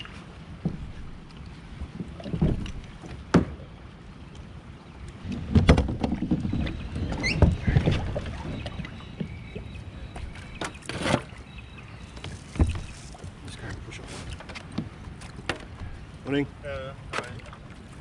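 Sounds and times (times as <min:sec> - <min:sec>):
paddle splashes: 0:00.0 - 0:16.2, 0:17.0 - 0:18.0
knocks on plastic hull: 0:05.3 - 0:06.8.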